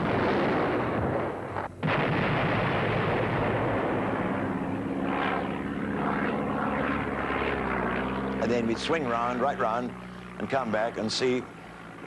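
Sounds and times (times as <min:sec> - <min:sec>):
rumbling bomb blast: 0:00.0 - 0:06.1
propeller aircraft engine drone: 0:00.0 - 0:12.0.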